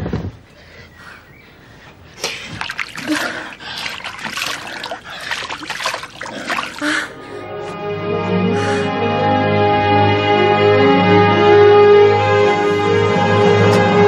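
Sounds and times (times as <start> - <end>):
water splashing in a wash basin: 2.2 - 7.2.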